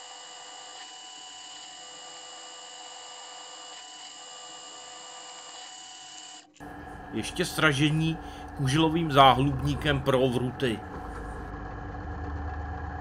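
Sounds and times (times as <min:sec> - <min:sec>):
electric drill whining: 0:00.0 - 0:10.3.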